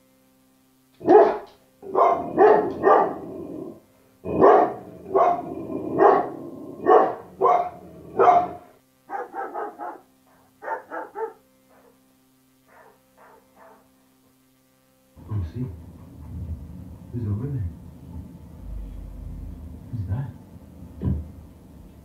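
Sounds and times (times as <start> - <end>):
dog barking: 1.0 - 3.4, 4.3 - 12.0, 12.7 - 13.9.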